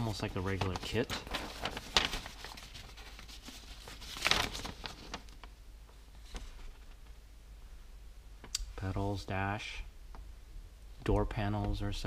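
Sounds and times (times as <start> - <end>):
plastic bags crinkling: 0.1 - 5.5.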